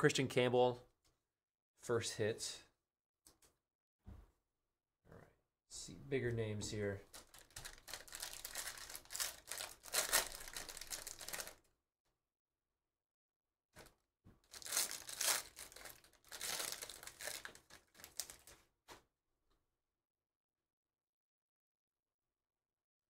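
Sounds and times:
foil wrappers tearing and crinkling: 7.1s - 11.6s, 14.4s - 18.6s.

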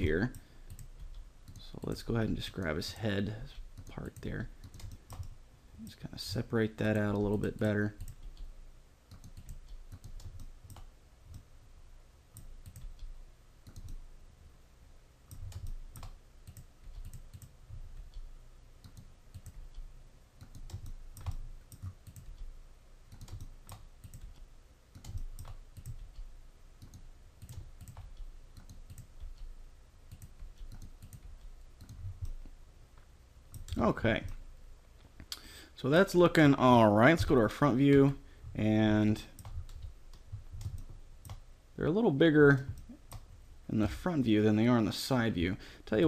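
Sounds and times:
low steady hum: 0.0s - 46.0s
computer mouse clicks: 0.2s - 2.0s, 3.8s - 5.4s, 7.4s - 8.5s, 9.1s - 11.5s, 12.3s - 14.0s, 15.3s - 22.5s, 23.1s - 29.5s, 30.1s - 32.5s, 39.4s - 41.4s.

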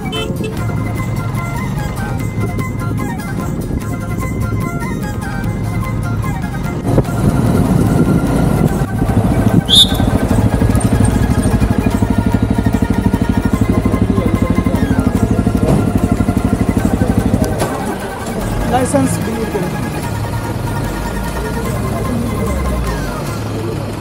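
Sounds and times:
motorcycle engine running: 5.4s - 24.0s
brief high chirp: 9.7s - 10.2s.

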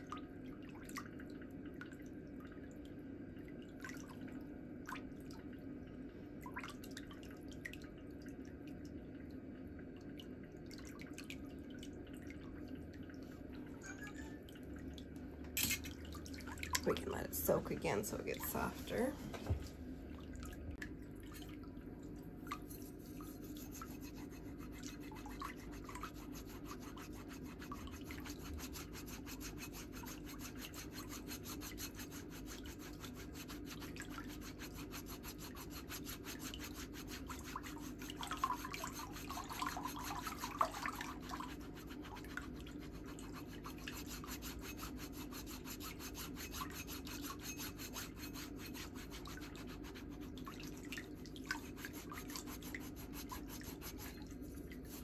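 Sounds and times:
low steady hum: 0.0s - 55.0s
metal foot file scraping skin: 44.0s - 49.8s.

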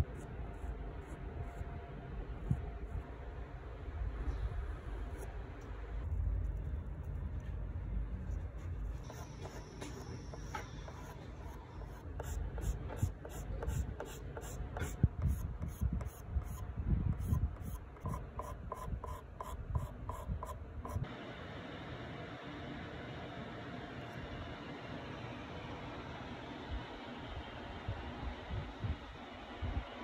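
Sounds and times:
pastel pencil scratching on paper: 8.9s - 16.6s, 17.2s - 21.0s.

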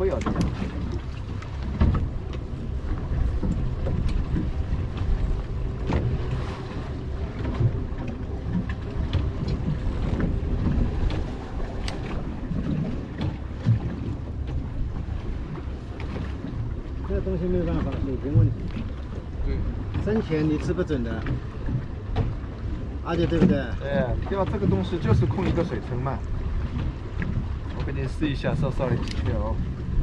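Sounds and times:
small knocks and ticks: 0.0s - 2.5s, 3.3s - 5.1s, 21.2s - 22.4s, 28.8s - 29.5s
wind and water around a boat: 0.0s - 30.0s.

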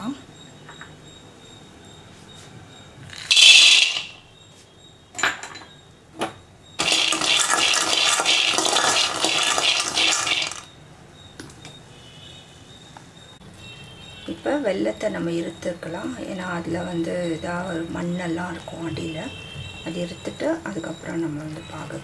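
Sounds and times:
nuts rattling in metal pan: 3.2s - 4.2s, 6.8s - 10.7s.

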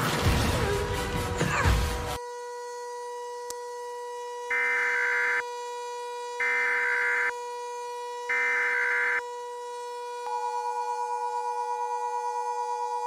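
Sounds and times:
steady siren-like tone: 2.0s - 13.0s.

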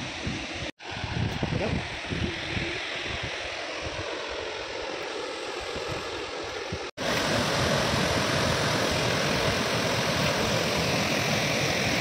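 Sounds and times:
waterfall rushing: 7.0s - 12.0s.

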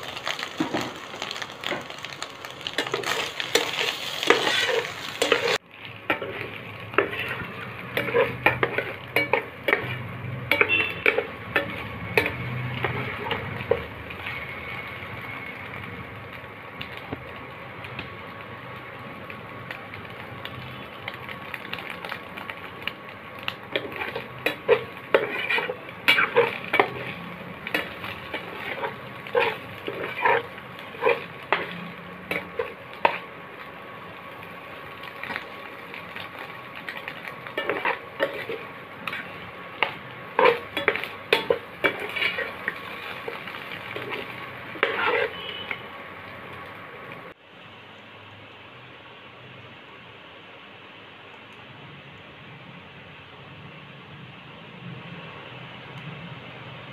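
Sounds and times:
food sizzling in pan: 0.0s - 56.9s
spatula scraping pan: 0.2s - 14.8s, 23.7s - 33.3s, 36.8s - 45.9s.

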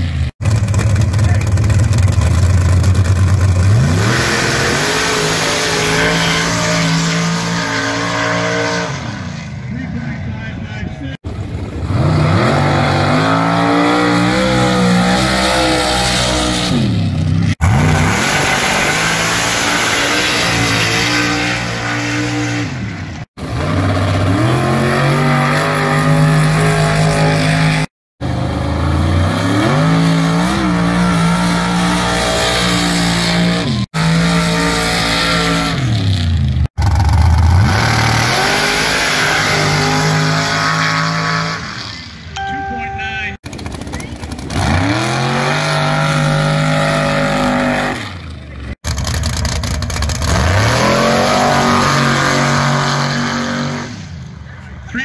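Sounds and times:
race truck engines accelerating: 0.0s - 55.0s
tires slinging sand: 3.6s - 10.5s, 37.2s - 42.2s, 50.1s - 54.6s.

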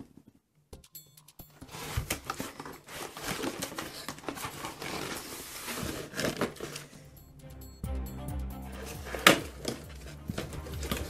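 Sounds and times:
cardboard box rustling: 1.6s - 7.0s, 9.2s - 11.0s
plastic toy parts handled: 1.6s - 7.0s.

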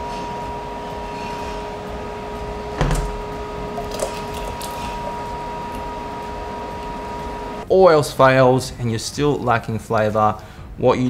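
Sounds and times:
two-tone electrical hum: 0.0s - 9.4s
dull thump: 2.8s - 3.2s.

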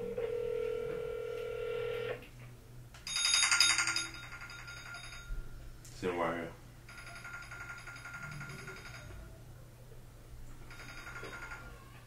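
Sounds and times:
phone ringback tone: 0.0s - 2.2s.

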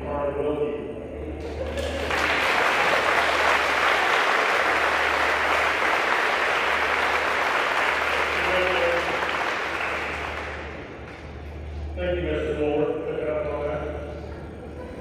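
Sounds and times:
audience applauding: 1.6s - 11.0s.

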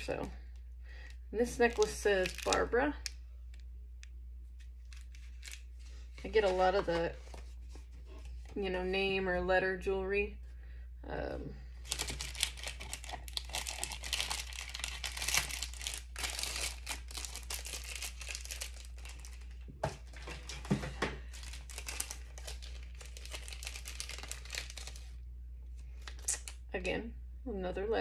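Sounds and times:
plastic bags crinkling: 1.4s - 3.6s, 4.7s - 7.2s, 11.8s - 25.2s.

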